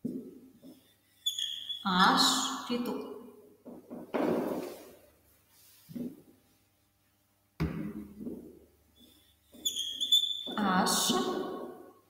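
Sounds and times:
marker squeaking on a whiteboard: 0.6s - 2.7s, 9.0s - 11.7s.

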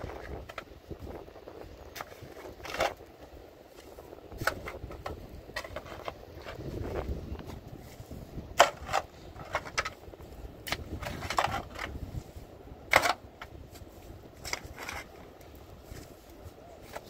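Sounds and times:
shovel scraping wet stony mud: 8.6s - 10.0s.

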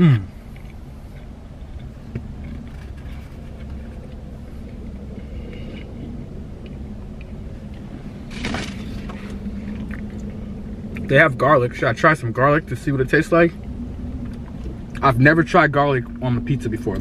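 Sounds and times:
car engine rumble from cabin: 0.0s - 17.0s
rustle of movement: 0.4s - 6.2s.

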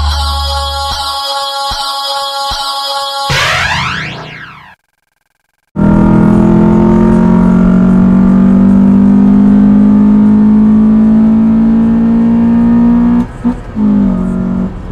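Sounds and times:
car engine accelerating: 5.8s - 14.9s.

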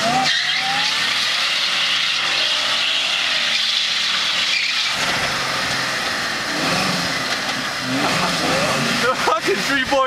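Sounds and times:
car engine at high revs: 0.0s - 10.0s
tyres squealing on pavement: 0.0s - 10.0s.

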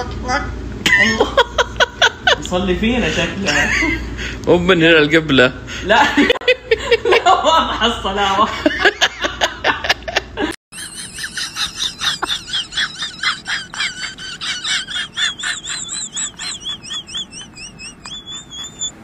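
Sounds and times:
man laughing: 8.5s - 19.0s
high warbling whistle: 15.3s - 19.0s.

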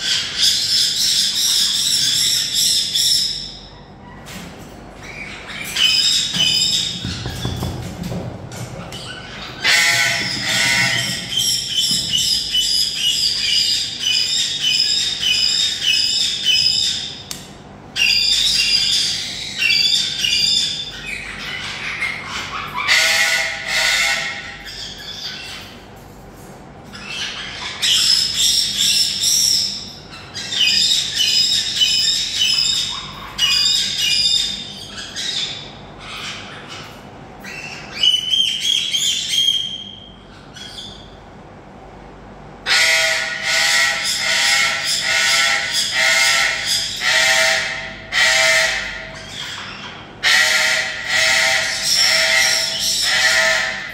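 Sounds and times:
parrot chick squawking: 8.8s - 17.4s, 18.0s - 25.6s, 26.9s - 41.2s, 42.6s - 53.9s.

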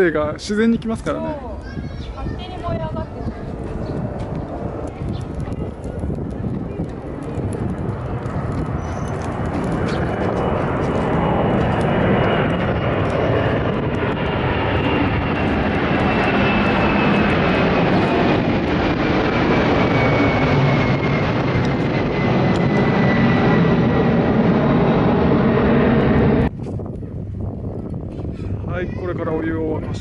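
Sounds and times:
jet plane passing overhead: 0.0s - 30.0s.

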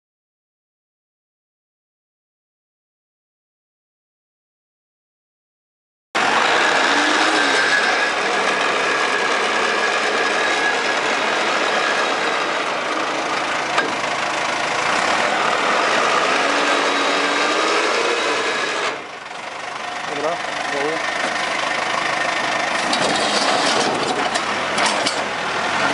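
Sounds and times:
diesel engine running: 6.2s - 25.9s.

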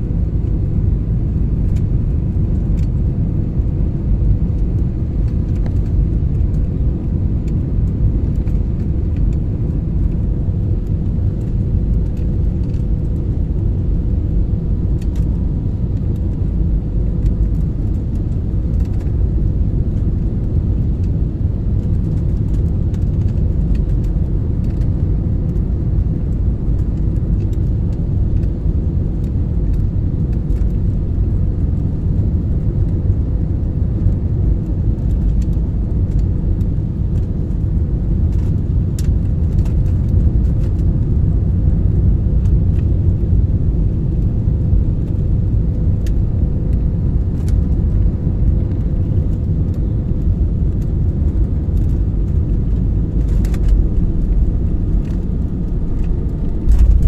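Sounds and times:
jet engines: 0.0s - 57.0s.

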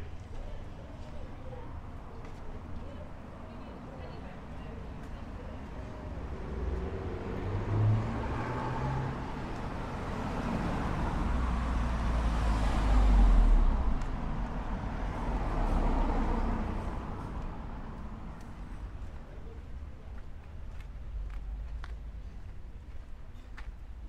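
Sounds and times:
cars driving past: 5.6s - 19.2s.

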